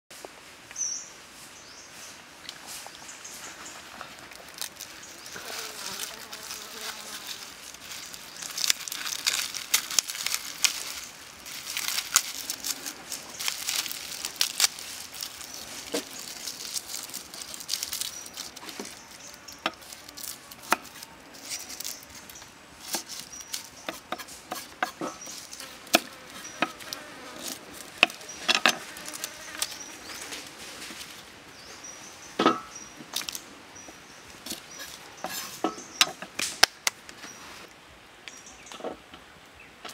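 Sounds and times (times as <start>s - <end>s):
insects buzzing: 0.8s - 36.4s
shallot skins crackling: 3.4s - 31.2s.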